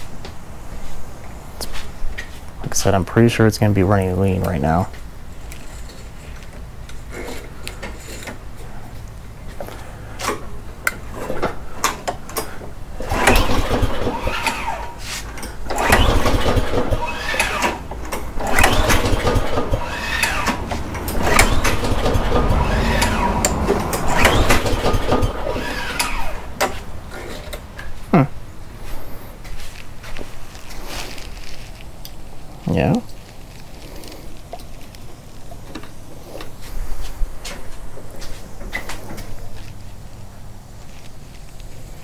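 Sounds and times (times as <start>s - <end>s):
mower engine cranking over: 10.2s - 27.9s
recoil starter yanks: 10.2s - 27.9s.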